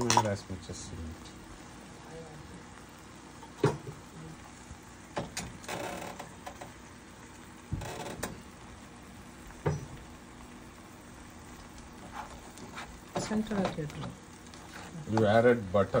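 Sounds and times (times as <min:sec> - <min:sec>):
knocks on a frying pan: 0:03.6 - 0:04.0, 0:09.6 - 0:10.0.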